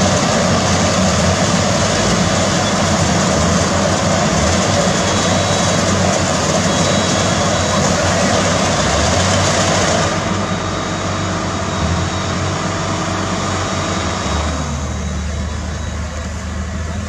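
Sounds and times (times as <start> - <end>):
engine drone: 0.0 - 17.0
machinery noise: 0.0 - 17.0.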